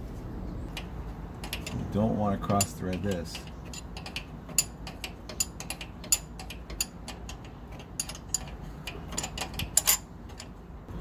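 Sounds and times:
wrench clicking on metal fitting: 2.5 - 10.5.

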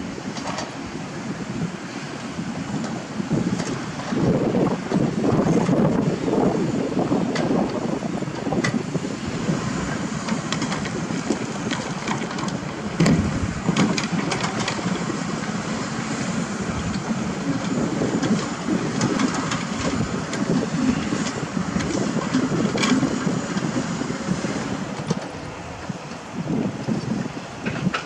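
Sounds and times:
diesel engines running: 0.0 - 28.0
knocks and clanks: 10.2 - 15.0, 27.6 - 28.0.

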